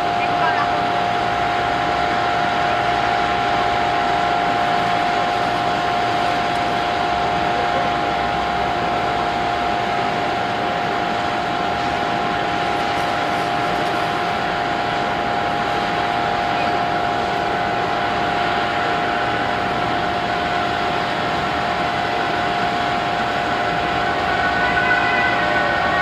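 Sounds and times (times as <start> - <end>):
jet airliner hiss and whine: 0.0 - 26.0.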